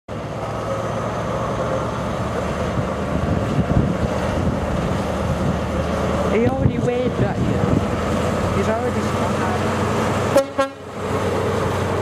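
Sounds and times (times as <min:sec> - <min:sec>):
train diesel engine droning: 0:00.1 - 0:12.0.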